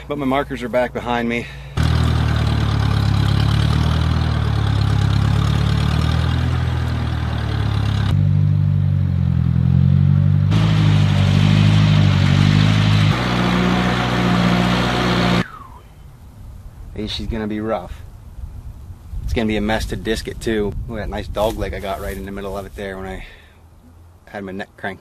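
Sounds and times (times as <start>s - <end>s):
tractor engine running: 1.6s - 15.5s.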